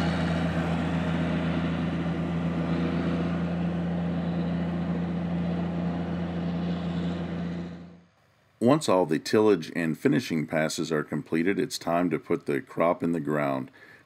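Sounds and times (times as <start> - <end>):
tractor diesel engine droning: 0.0 - 8.2.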